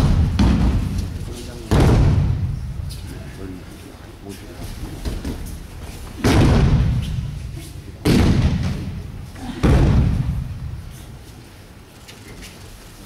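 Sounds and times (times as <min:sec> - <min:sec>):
heavy thuds on mats echoing: 0:00.0 - 0:03.0, 0:04.8 - 0:11.0.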